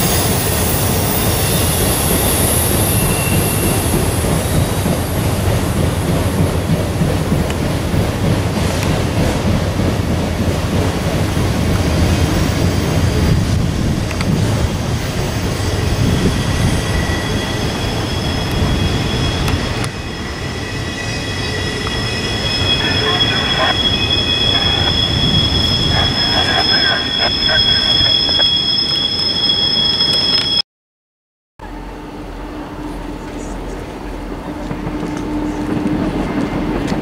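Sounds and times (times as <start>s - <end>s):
train wheels squealing on rails: 0.0s - 9.4s, 11.8s - 30.6s
low train rumble: 0.0s - 30.4s, 31.6s - 37.0s.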